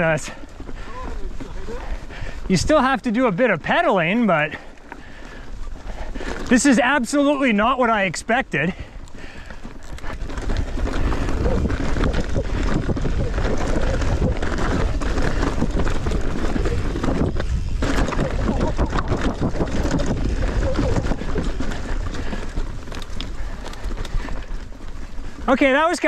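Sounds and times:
wind buffeting the microphone: 0.0s - 2.8s, 8.7s - 25.6s
bicycle rolling noise: 0.0s - 26.0s.

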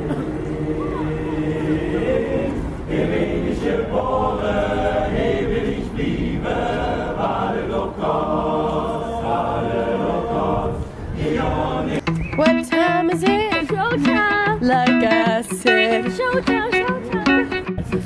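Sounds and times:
male a cappella choir singing: 0.0s - 12.1s.

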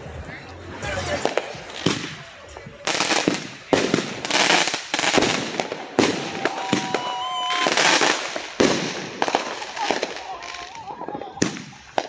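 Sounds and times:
firework bursts: 1.1s - 12.0s
firework hissing and crackling: 1.2s - 12.0s.

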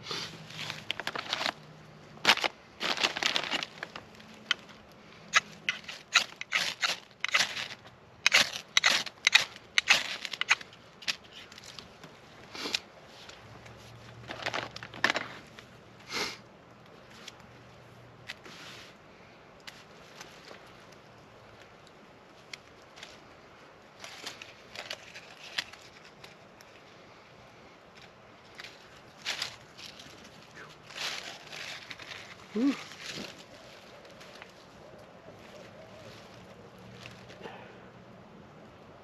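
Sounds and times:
knife scraping wood: 5.4s - 11.5s.

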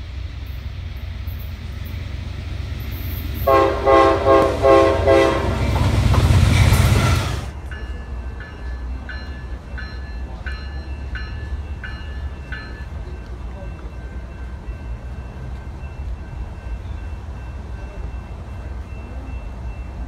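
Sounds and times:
train noise: 0.0s - 20.0s
train horn blasts: 3.0s - 7.5s.

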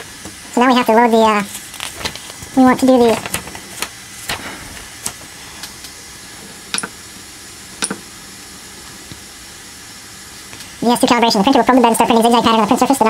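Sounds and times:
paper handling: 1.5s - 5.8s.

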